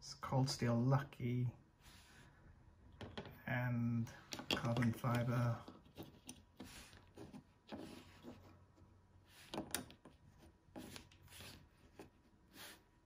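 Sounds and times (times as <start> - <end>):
knives sliding on plastic mat: 5.1 - 8.6.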